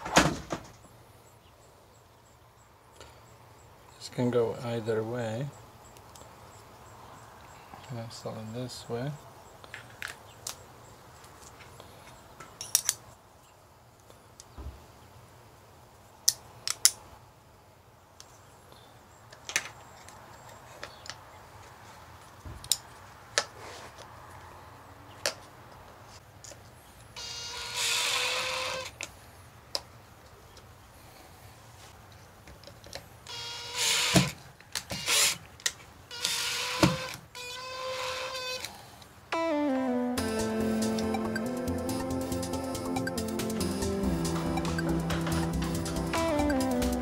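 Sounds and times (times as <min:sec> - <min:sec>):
cordless drill whining: 0:27.2 - 0:28.9, 0:33.3 - 0:34.3, 0:36.1 - 0:38.7.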